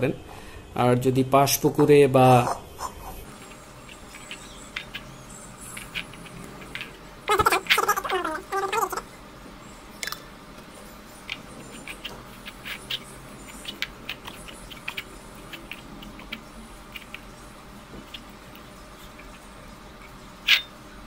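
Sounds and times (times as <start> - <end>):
fingers kneading dough on plate: 3.2 - 9.0, 11.1 - 20.8
person speaking: 5.7 - 9.1.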